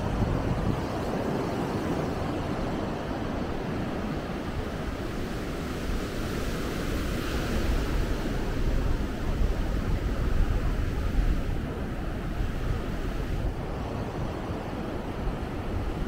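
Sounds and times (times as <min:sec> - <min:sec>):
wind on microphone: 0:00.0 - 0:16.0.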